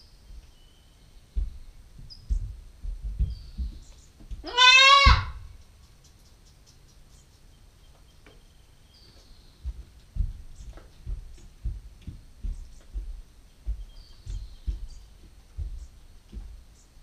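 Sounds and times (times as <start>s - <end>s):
dull knocks: 1.4s - 4.5s, 9.6s - 16.6s
goat kid bleating: 4.4s - 5.5s.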